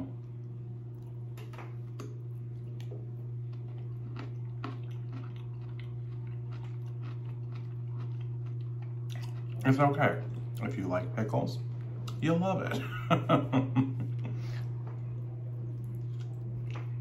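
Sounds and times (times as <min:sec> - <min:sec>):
steady low hum: 0:00.0 - 0:17.0
person chewing crunchy food: 0:00.8 - 0:10.8, 0:14.6 - 0:17.0.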